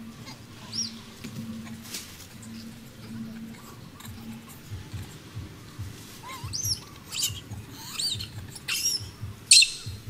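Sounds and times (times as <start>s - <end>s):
baby monkey squealing: 6.2s - 10.0s.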